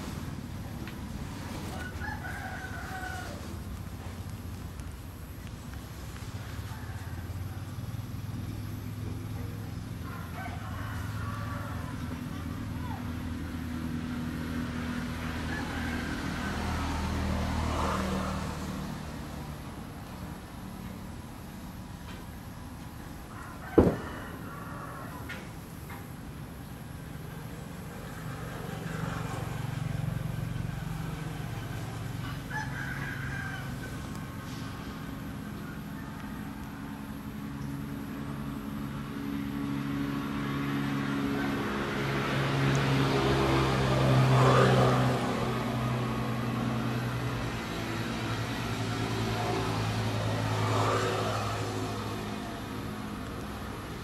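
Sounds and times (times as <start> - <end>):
vehicle passing: 0.0 - 25.6, 26.3 - 54.0
rooster crowing: 1.6 - 3.6, 6.4 - 8.0, 10.0 - 12.3, 15.2 - 18.6, 23.2 - 25.6, 30.8 - 37.0.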